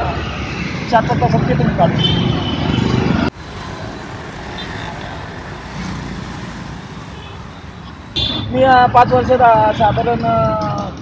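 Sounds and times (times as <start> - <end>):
rumble of passing vehicles: 0.0 - 11.0
traffic hiss: 3.3 - 10.0.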